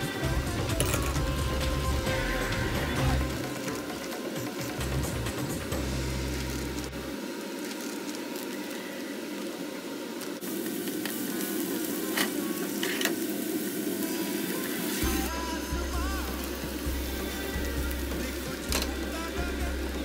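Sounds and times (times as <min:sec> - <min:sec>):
background music with deep bass: 0:00.0 - 0:07.1, 0:15.0 - 0:20.0
onions sizzling in a pan: 0:00.0 - 0:20.0.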